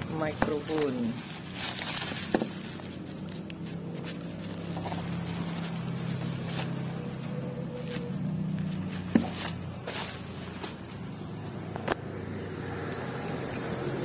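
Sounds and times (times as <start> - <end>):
packaging rustling: 0.2 - 11.2.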